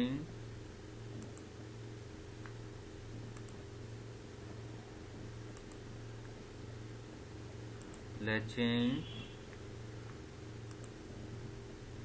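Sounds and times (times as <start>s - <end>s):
steady low hum: 0.0s - 12.0s
computer mouse clicks: 1.2s - 1.5s, 3.3s - 3.6s, 5.5s - 5.8s, 7.8s - 8.1s, 10.6s - 11.0s.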